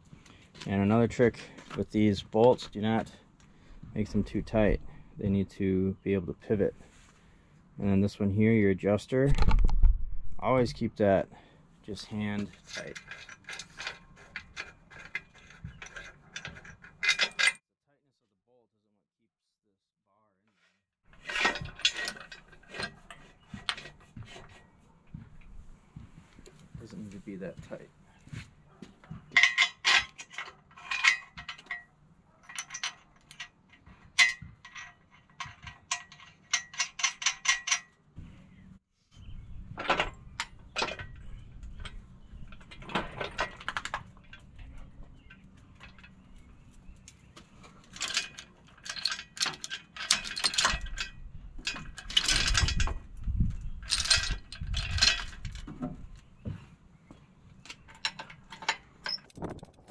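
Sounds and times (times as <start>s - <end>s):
steel chain rattling and clanking: 12.2s - 17.6s, 21.1s - 23.9s, 29.4s - 38.0s, 47.8s - 53.0s, 53.8s - 55.7s
metal clicks and clinks: 29.4s - 38.0s, 47.9s - 53.0s.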